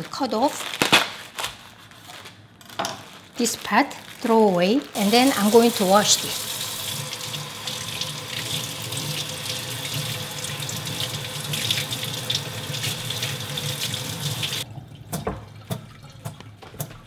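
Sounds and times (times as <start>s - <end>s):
water drips and splashes: 5.1s - 17.0s
faucet running into sink: 5.7s - 17.0s.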